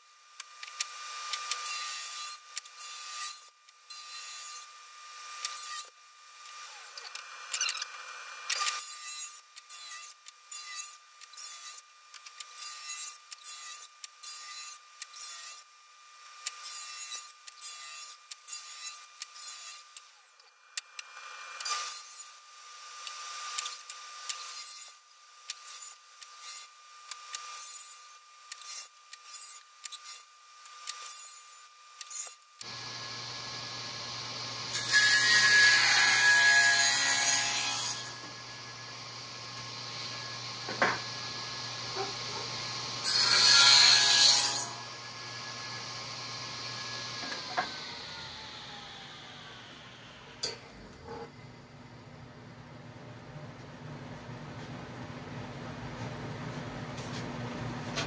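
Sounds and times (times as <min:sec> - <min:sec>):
loud cutting noise: 0:32.6 - 0:51.1
steady machine hum: 0:44.8 - 0:57.9.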